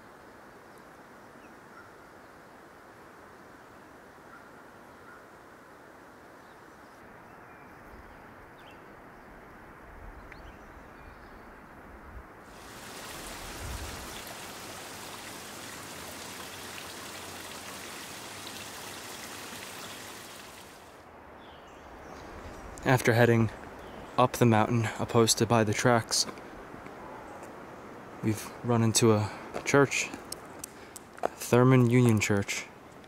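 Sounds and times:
rushing outdoor ambience: 0:12.5 - 0:33.0.

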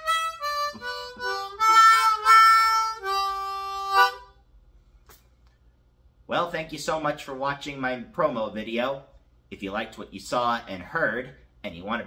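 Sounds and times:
harmonica playing: 0:00.0 - 0:04.4.

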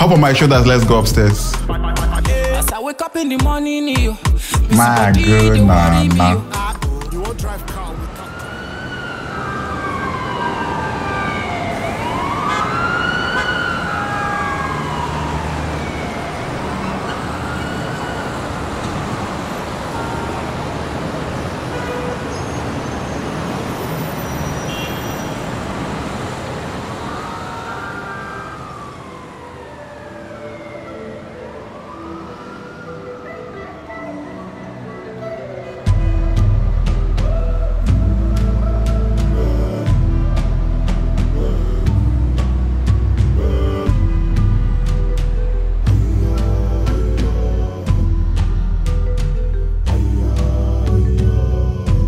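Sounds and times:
city traffic noise: 0:00.0 - 0:52.0
emergency vehicle siren wailing: 0:04.7 - 0:35.9.

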